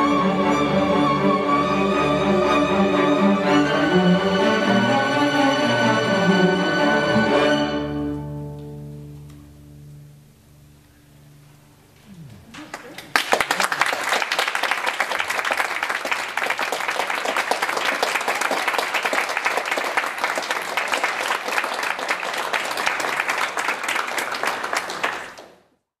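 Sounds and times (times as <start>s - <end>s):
audience applauding: 12.5s - 25.8s.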